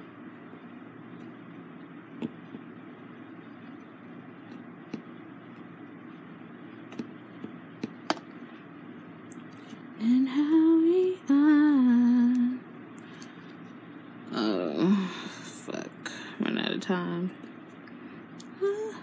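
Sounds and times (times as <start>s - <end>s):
woman humming: 18.5s - 19.0s.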